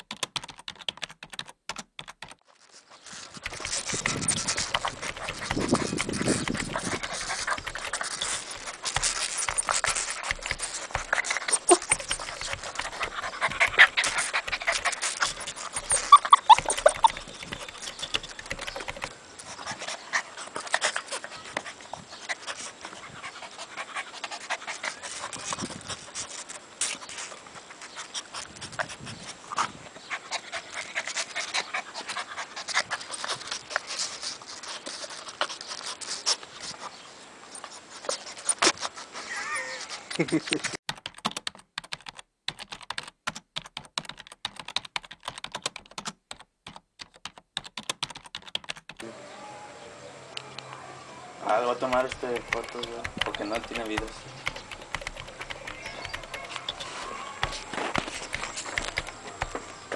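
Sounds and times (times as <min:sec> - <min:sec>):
scratchy clicks on camera: 0:03.4 - 0:19.1, 0:51.8 - 0:59.9
puppy panting and snuffling: 0:03.4 - 0:26.6, 0:27.8 - 0:36.8, 0:51.8 - 0:59.9.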